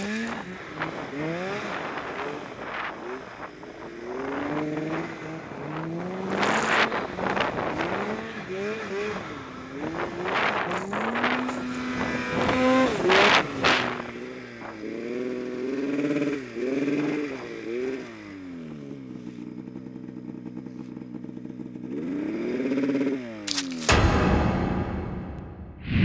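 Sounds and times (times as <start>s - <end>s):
snowmobile engine revving: 0.0s - 18.6s, 21.4s - 23.8s
short rushes of noise: 23.6s - 26.0s.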